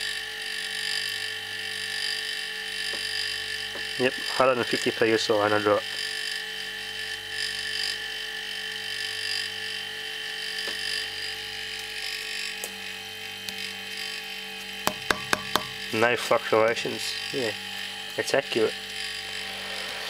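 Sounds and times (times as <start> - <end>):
compressors humming: 14.5 - 18.6.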